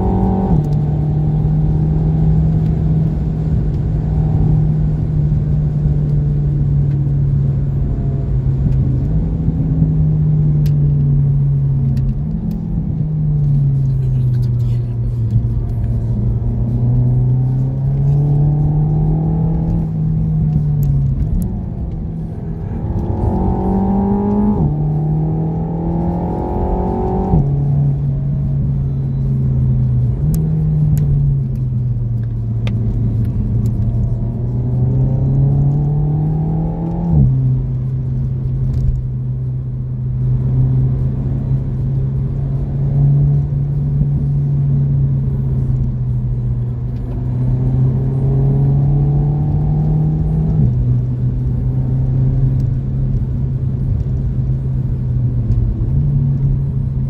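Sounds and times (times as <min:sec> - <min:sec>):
car engine revving with gear shifts: 0:00.0 - 0:57.0
road and tyre rumble: 0:00.0 - 0:57.0.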